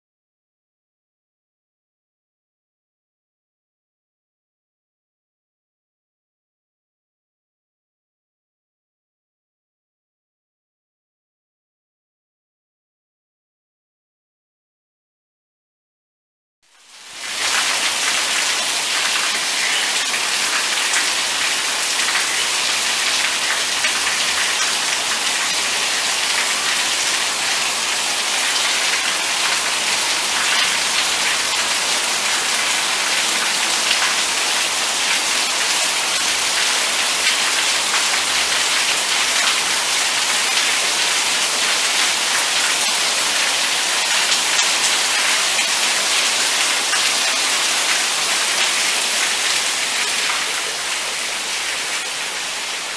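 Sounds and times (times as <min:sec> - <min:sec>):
rain on corrugated roof: 0:16.7 - 0:52.9
heavy rain on pavement: 0:16.8 - 0:52.9
water running off roof: 0:17.0 - 0:52.9.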